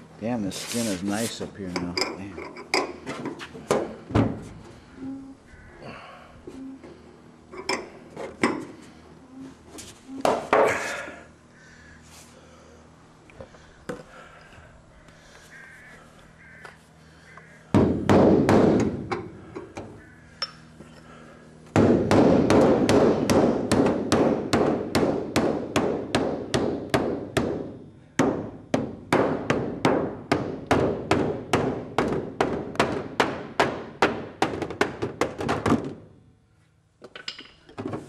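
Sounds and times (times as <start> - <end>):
hammer striking aluminium: 21.7 - 35.7.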